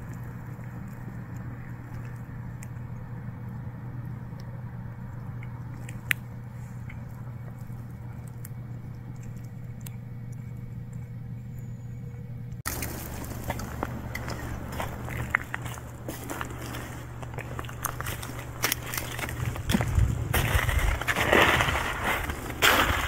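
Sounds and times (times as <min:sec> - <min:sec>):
steady low hum: 0:00.0 - 0:23.0
footsteps crunching on dry leaves: 0:12.7 - 0:23.0.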